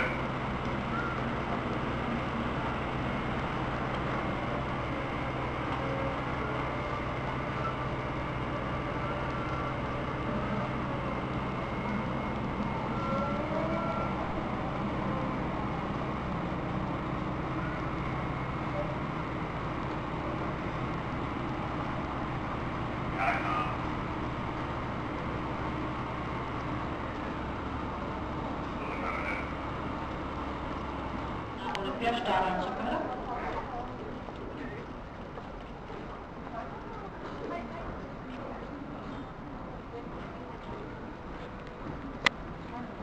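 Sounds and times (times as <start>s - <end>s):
low machine hum: 0.0s - 43.0s
station background rumble: 0.0s - 43.0s.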